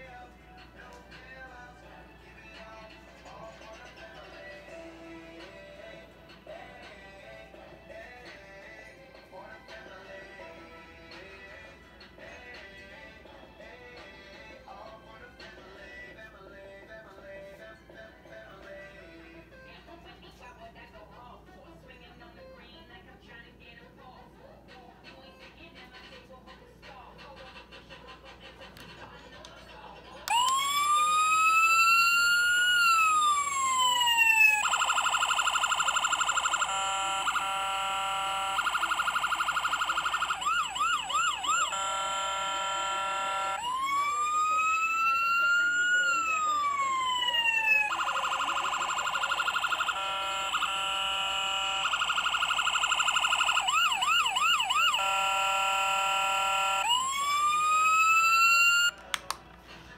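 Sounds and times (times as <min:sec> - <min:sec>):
toy police car electronic siren: 0:30.3 - 0:59.0.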